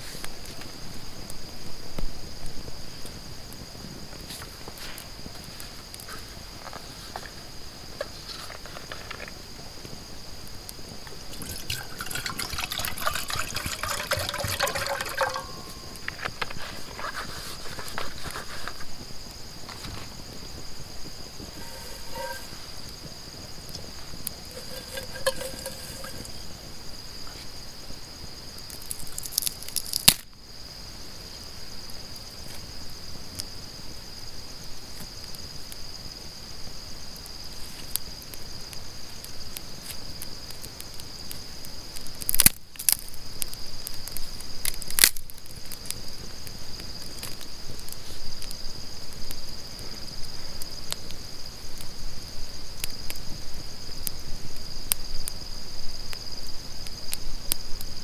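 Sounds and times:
night insects trilling: 0.0 - 58.0
campfire wood snapping: 10.7 - 19.0, 19.6 - 26.7, 28.6 - 30.3, 42.0 - 49.4.

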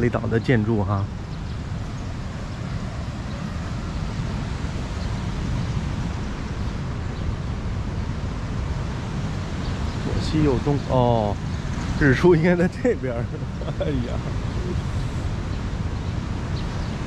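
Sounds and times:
ocean surf rushing: 0.0 - 17.0
wind buffeting microphone: 0.0 - 17.0.

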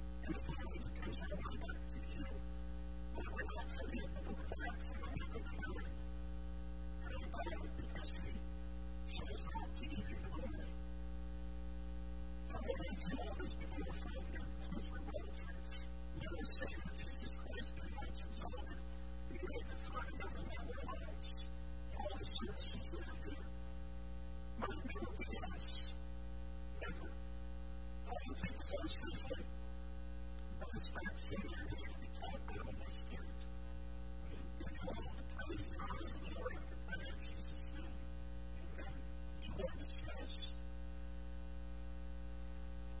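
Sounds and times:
electrical mains hum: 0.0 - 43.0
faint voice: 0.2 - 2.4, 3.1 - 6.0, 7.0 - 8.5, 9.1 - 10.8, 12.5 - 23.5, 24.6 - 26.0, 26.7 - 27.2, 28.0 - 29.5, 30.4 - 33.5, 34.2 - 40.7.

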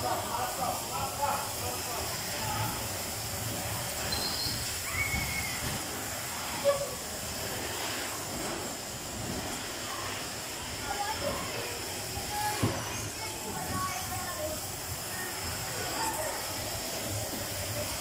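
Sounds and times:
short squeaks: 4.0 - 5.6.

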